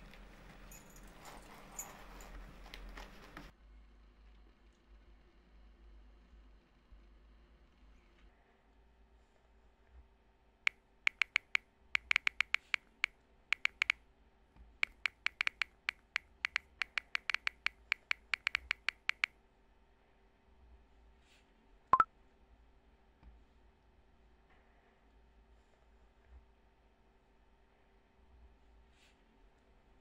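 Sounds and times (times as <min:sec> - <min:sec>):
phone keyboard tap clicks: 0:11.1 - 0:12.8, 0:13.6 - 0:14.0, 0:14.8 - 0:19.3.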